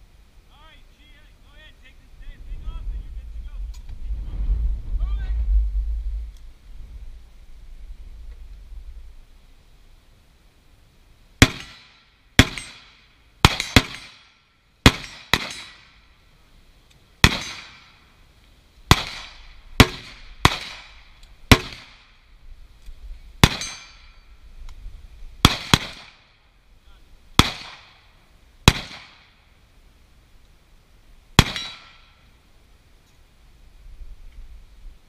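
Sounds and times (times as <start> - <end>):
rifle gunshots ringing: 11.4 - 14.2, 14.8 - 15.8, 17.2 - 17.9, 18.9 - 22.1, 23.4 - 24.0, 25.4 - 26.2, 27.4 - 28.0, 28.7 - 29.2, 31.4 - 32.1.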